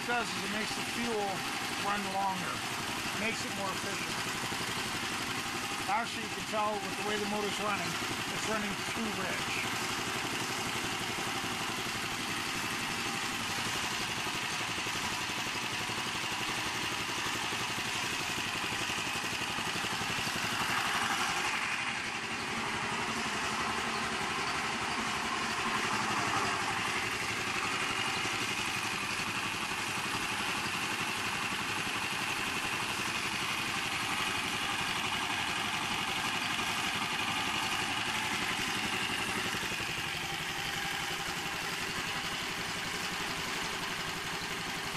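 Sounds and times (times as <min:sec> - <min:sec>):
small engine running steadily: 0:00.0 - 0:44.9.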